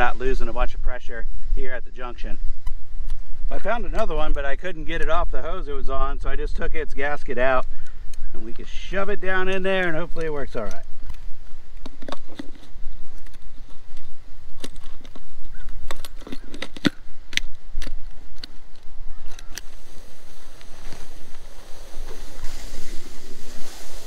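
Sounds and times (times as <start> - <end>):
hose dragged through dry grass: 19.6 - 24.0.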